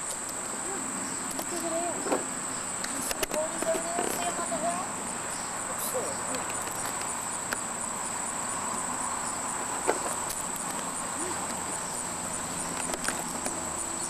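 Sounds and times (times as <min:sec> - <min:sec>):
insects trilling: 0:00.0 - 0:14.0
sharp click: 0:02.8 - 0:04.2.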